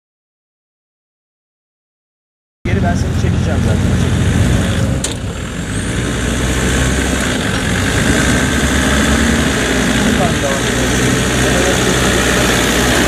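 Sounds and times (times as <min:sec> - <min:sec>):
diesel engine running at low revs: 0:02.7 - 0:13.0.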